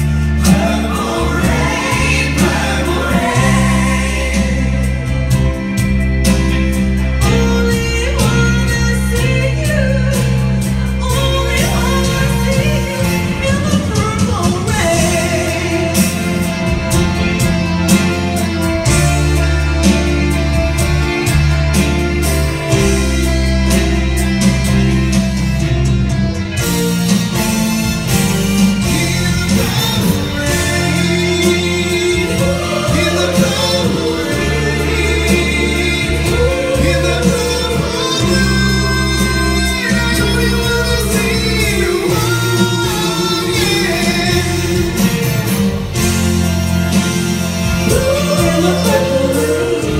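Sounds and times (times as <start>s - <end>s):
voices singing: 0.0s - 6.3s, 28.8s - 45.0s, 47.7s - 49.9s
sustained bass notes: 0.0s - 49.9s.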